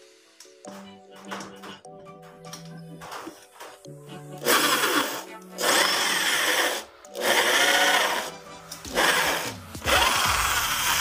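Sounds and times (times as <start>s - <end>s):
electric drill boring through metal: 4.4s - 11.0s.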